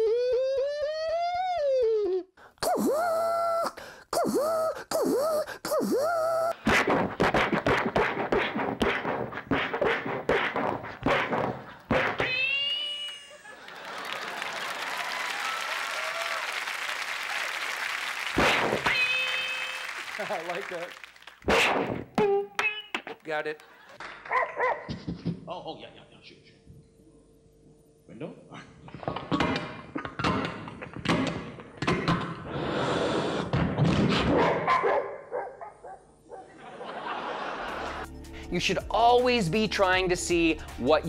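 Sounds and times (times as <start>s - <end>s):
mouth-made sound effect: 0.0s - 7.4s
audience applauding: 13.4s - 21.5s.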